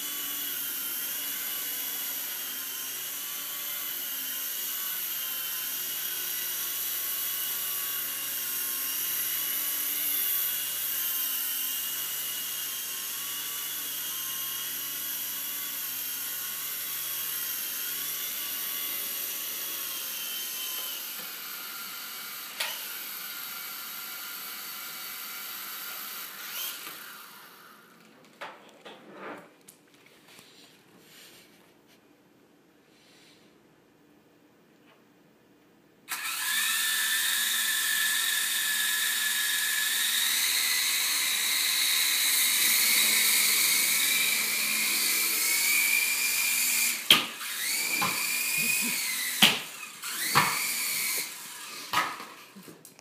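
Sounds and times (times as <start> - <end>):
rc helicopter motors whining: 0.0 - 28.0, 36.1 - 52.6.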